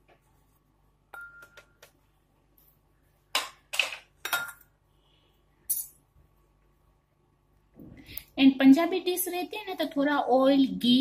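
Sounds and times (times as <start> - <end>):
cookware clinking: 3.4 - 4.7.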